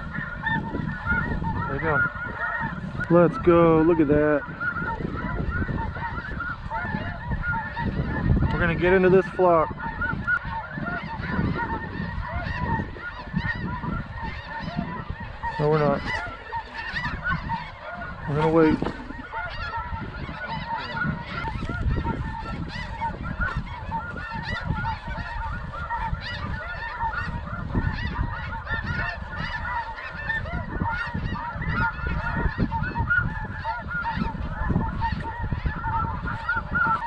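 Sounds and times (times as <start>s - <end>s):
geese honking: 0.0s - 37.0s.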